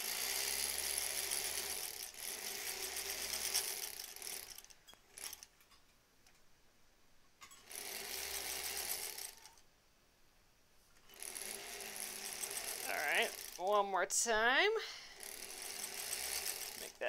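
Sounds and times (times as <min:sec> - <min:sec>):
sewing machine stitching: 0:00.0 - 0:05.5, 0:07.4 - 0:09.6, 0:11.0 - 0:13.9, 0:15.1 - 0:17.0.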